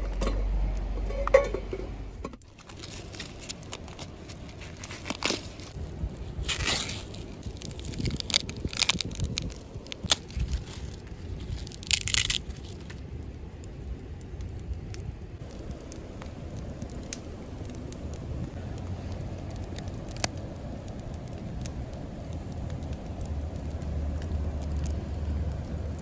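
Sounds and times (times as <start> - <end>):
low background rumble: 0.0 - 26.0
corn husks ripping: 2.4 - 13.0.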